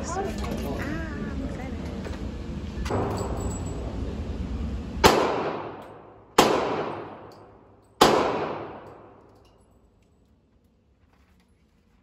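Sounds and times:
gunshots echoing indoors: 5.0s - 9.3s.

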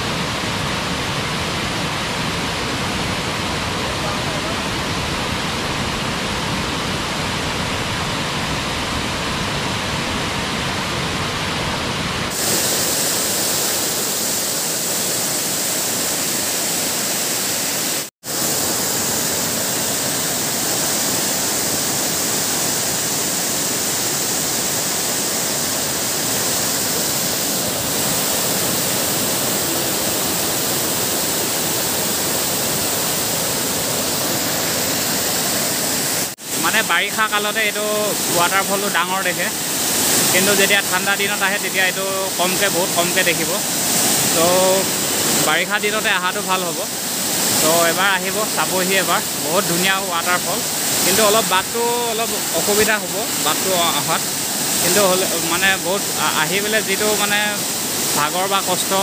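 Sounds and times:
waterfall roaring: 0.0s - 59.0s.

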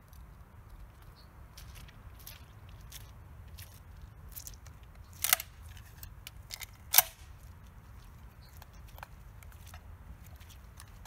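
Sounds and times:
shotgun metallic clicks: 5.1s - 7.3s.

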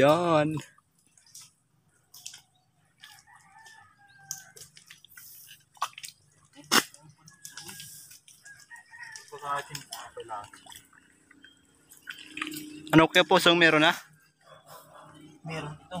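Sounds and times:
clicks and wet sounds: 0.0s - 12.9s.

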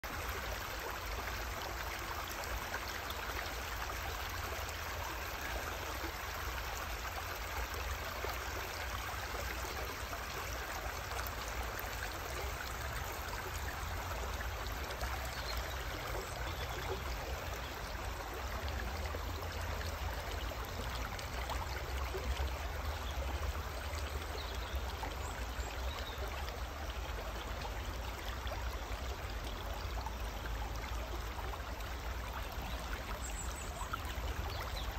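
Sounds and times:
river flowing over pebbles: 0.0s - 34.9s.

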